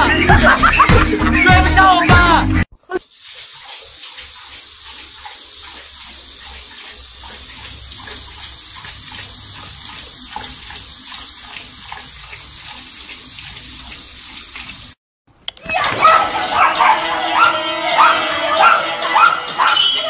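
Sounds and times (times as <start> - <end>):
tap water running into sink: 3.0 - 15.0
dog drinking: 3.2 - 15.0.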